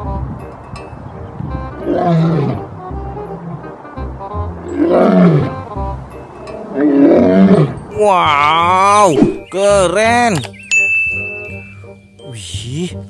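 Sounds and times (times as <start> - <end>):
background music: 0.0 - 13.0
lion roaring: 1.8 - 2.7, 4.6 - 5.7, 6.6 - 8.0.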